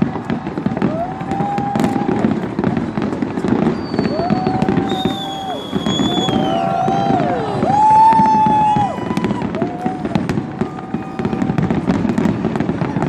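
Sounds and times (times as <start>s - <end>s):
fireworks crackling and banging: 0.0s - 13.0s
firework whistles: 0.6s - 2.4s, 3.4s - 13.0s.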